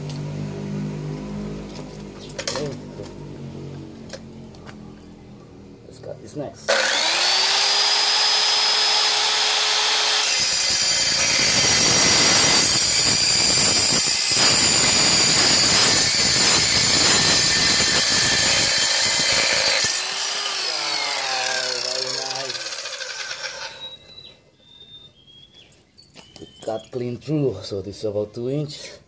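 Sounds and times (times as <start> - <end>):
circular saw cutting steel pipe: 6.7 - 24.0.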